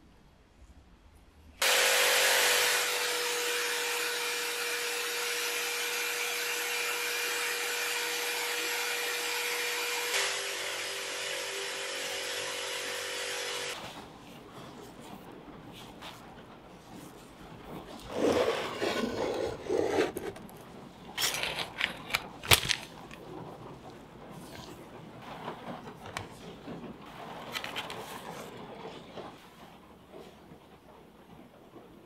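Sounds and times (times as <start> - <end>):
electric motor hum: 1.6 - 13.8.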